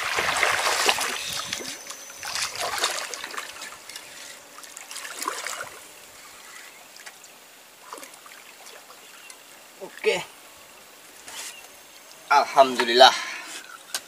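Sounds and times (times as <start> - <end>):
fish splashing in water: 0.0 - 7.2.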